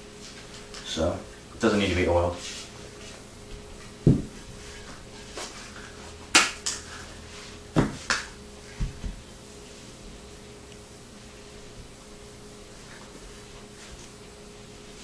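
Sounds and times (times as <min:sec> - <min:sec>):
axe thumping on covered wooden floor: 0:04.0 - 0:04.4, 0:07.8 - 0:08.0.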